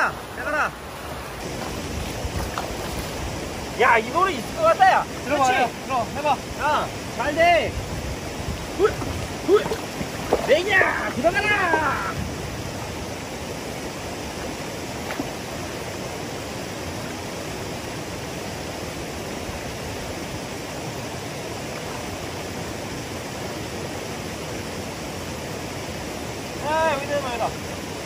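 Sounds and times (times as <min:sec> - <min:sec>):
stream rushing over rocks: 0:00.0 - 0:28.0.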